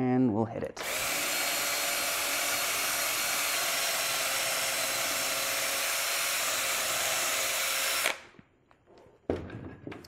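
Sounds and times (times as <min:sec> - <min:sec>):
cordless drill spinning: 0:00.8 - 0:08.4.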